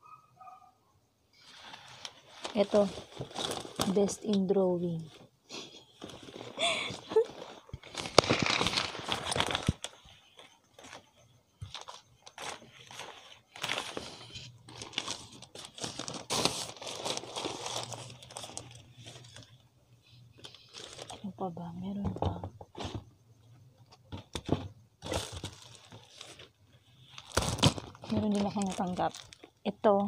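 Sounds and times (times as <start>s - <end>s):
plastic bags crinkling: 1.8s - 4.4s, 5.9s - 19.6s, 20.4s - 21.4s, 25.0s - 30.0s.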